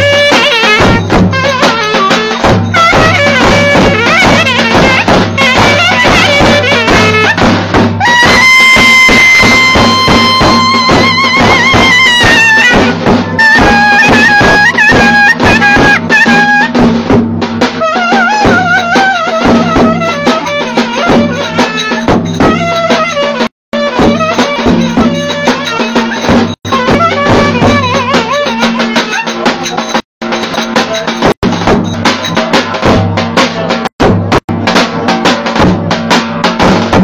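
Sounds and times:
clarinet folk melody: 0.0 - 16.8, 17.8 - 30.0
steady drum beats: 0.0 - 37.0.

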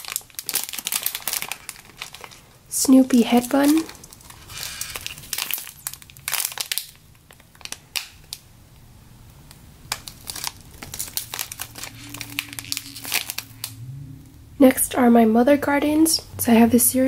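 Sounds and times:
plastic bag crinkling: 0.0 - 8.4, 9.9 - 13.8.

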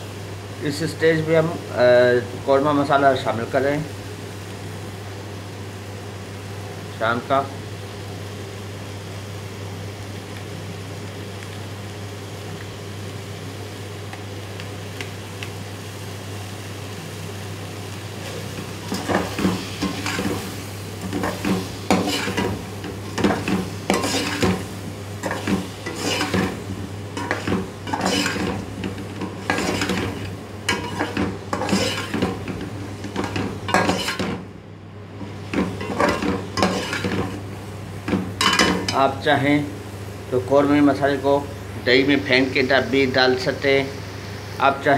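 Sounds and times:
light sizzle: 0.0 - 44.9
steady low hum: 0.0 - 44.9
metal spatula scraping pot: 21.1 - 24.6, 25.2 - 26.6, 27.2 - 34.4, 35.5 - 37.4.

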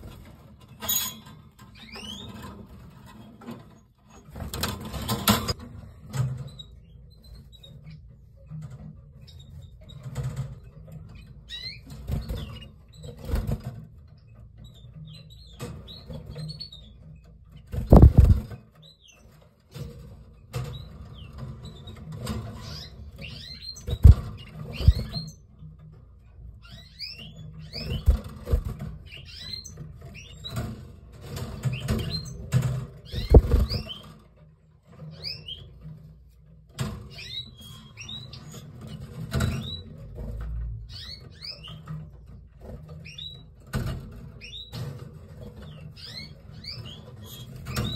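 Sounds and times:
canaries chirping: 0.0 - 47.9
thumps: 17.8 - 18.6, 23.9 - 25.2, 27.8 - 28.8, 33.1 - 34.0.

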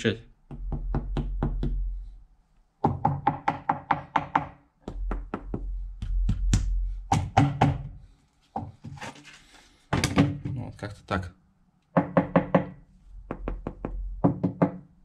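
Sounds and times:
knuckles knocking on plastic pipe: 0.5 - 1.8, 12.0 - 14.8.

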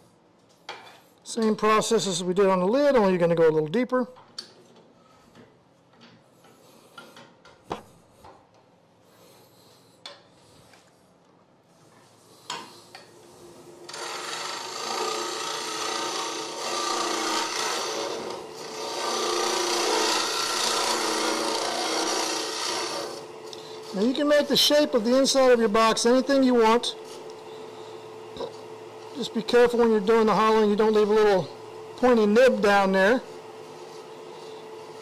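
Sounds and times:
lathe motor hum: 13.4 - 35.0
lathe tool scraping wood: 13.9 - 31.4.

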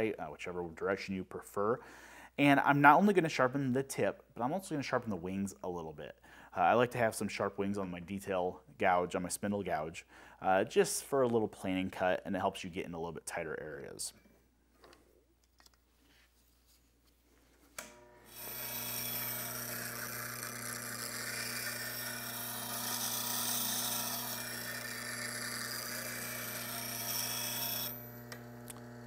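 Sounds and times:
grinder motor hum: 17.8 - 29.0
tool grinding on wheel: 18.0 - 29.0.

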